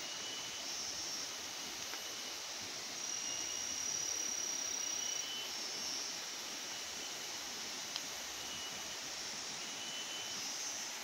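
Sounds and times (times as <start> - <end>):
high insect calls: 0.0 - 11.0
steady background hiss: 0.0 - 11.0.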